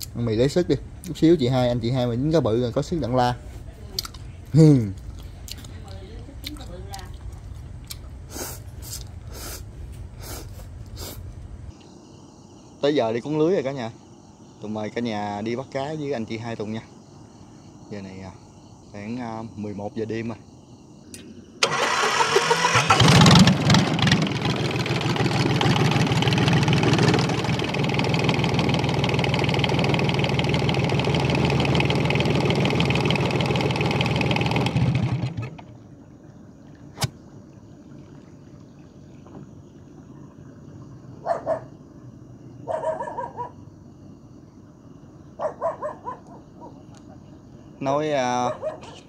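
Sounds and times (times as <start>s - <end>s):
small boat engine running: 0.0s - 3.6s, 21.6s - 43.5s.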